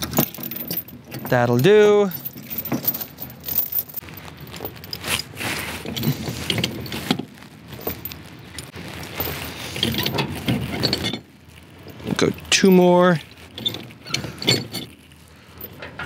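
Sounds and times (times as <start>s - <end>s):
chain rattling on wooden deck: 0.0s - 4.0s, 13.5s - 15.0s.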